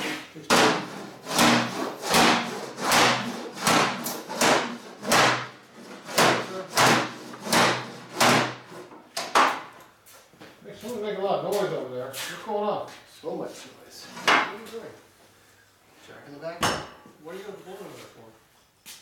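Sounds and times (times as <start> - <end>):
sharp knocks: 0.5 - 9.7.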